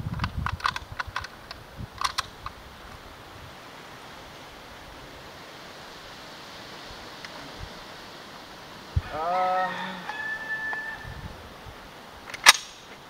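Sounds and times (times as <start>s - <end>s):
steady background hiss: 0.0s - 13.0s
metallic rifle clicks: 0.1s - 2.6s, 12.2s - 12.8s.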